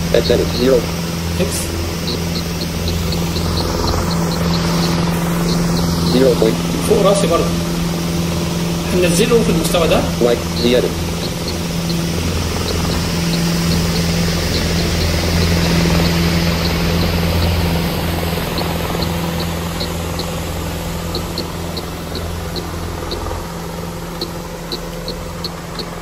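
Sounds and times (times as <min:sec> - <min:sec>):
low engine-like drone: 0:00.0 - 0:26.0
faint short high ticks: 0:24.1 - 0:26.0.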